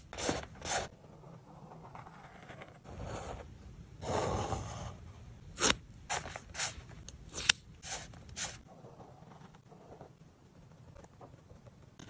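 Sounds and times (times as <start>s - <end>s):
marker scratching on paper: 0.0s - 3.4s.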